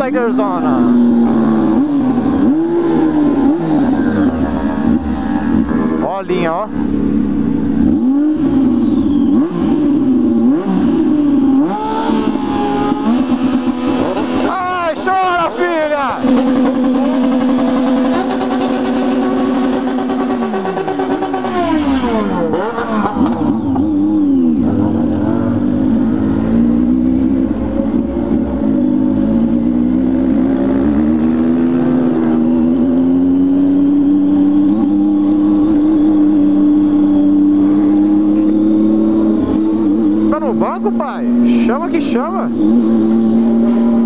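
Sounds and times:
motorcycle engine and exhaust: 0.0 - 44.0.

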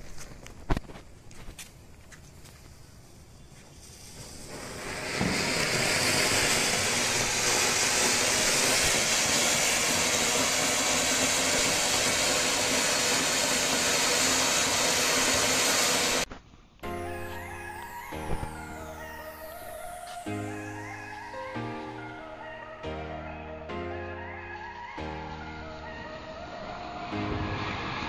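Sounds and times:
fountain firework spraying sparks: 2.7 - 16.3, 17.0 - 21.8.

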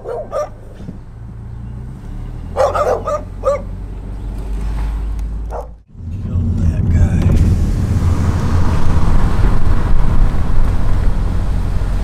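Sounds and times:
dog barking: 0.0 - 0.6, 2.5 - 3.8, 5.5 - 5.8.

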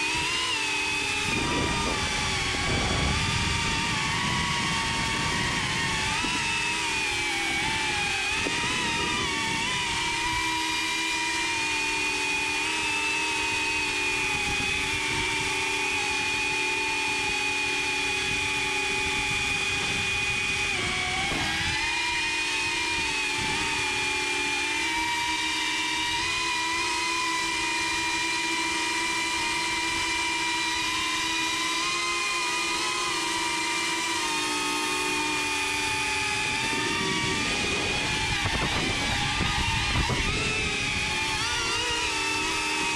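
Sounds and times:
quadcopter motors whining: 0.0 - 42.9.

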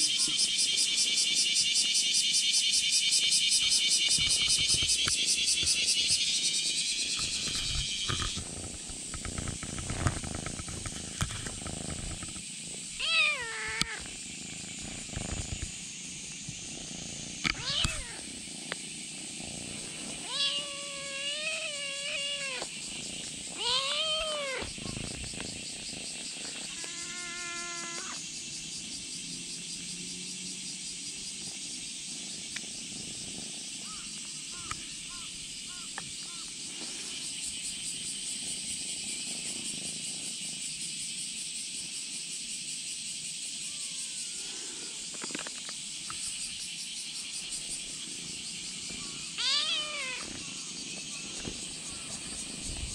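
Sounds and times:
kitten meowing: 13.0 - 14.0, 17.5 - 18.2, 20.2 - 22.7, 23.5 - 25.0, 26.7 - 28.2, 49.4 - 50.3.

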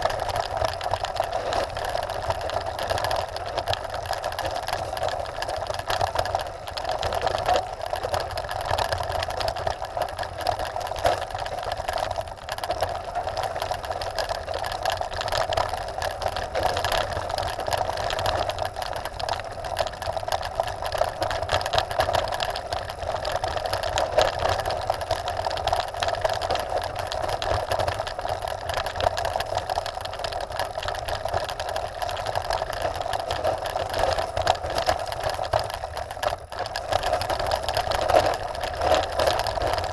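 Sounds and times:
bike and camera rattling: 0.0 - 39.9
bike tyres crunching over gravel: 0.0 - 39.9.

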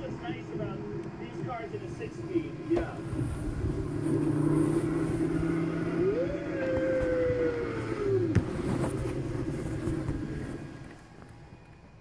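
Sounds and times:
car engine droning: 0.0 - 12.0
gliding tone: 2.6 - 11.4.

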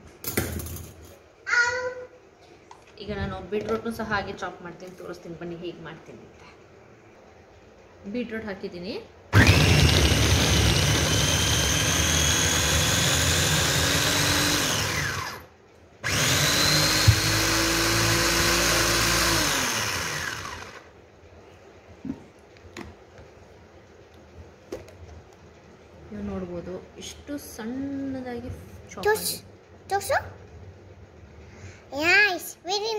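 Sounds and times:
electric chopper motor whining: 9.3 - 20.9.

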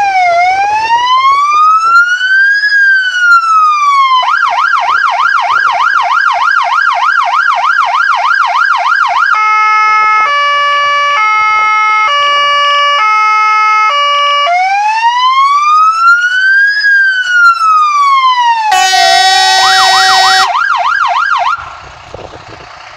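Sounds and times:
electronic siren: 0.0 - 21.8
loud horn blast: 18.7 - 20.5.

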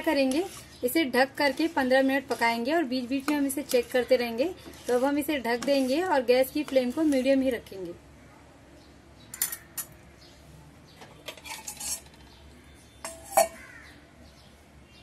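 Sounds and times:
spoon clinking against pot: 9.3 - 10.0, 13.0 - 13.7
metal lid clanging on pot: 13.0 - 13.6.

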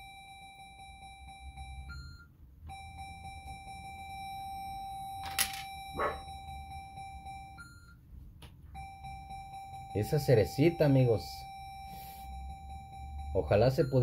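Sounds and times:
slot machine electronic tone: 8.8 - 14.0.

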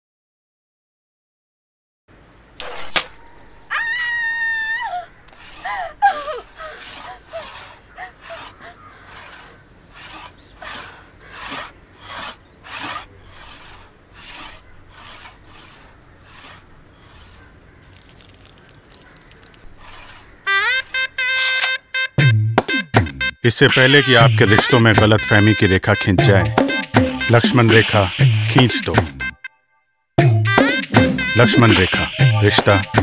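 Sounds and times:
high scream: 3.0 - 5.1.

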